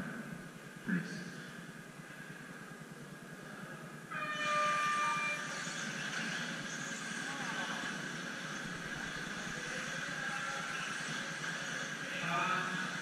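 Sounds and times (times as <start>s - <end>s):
horn-like tone: 4.1s - 5.8s.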